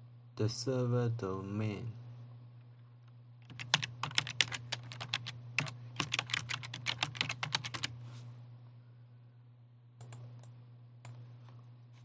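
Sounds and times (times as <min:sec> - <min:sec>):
typing on computer keyboard: 0:03.4 - 0:07.9.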